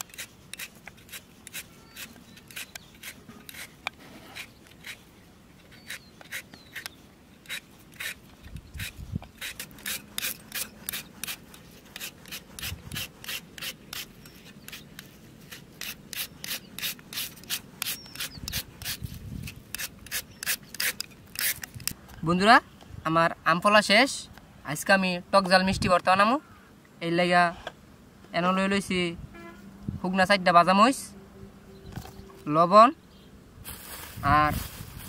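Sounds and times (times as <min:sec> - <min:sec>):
peeler scraping mango: 0:00.0 - 0:22.0.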